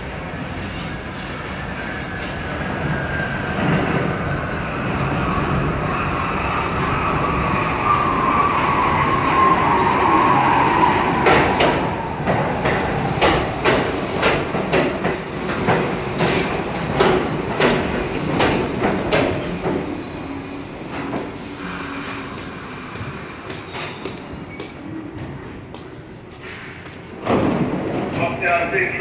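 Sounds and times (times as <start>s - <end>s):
subway train motor whine: 16.0s - 23.8s.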